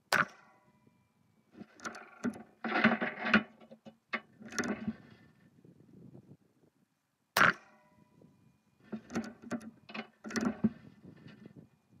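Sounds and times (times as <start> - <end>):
rifle bolt clacking and scraping: 1.6 - 5.3, 8.8 - 11.5.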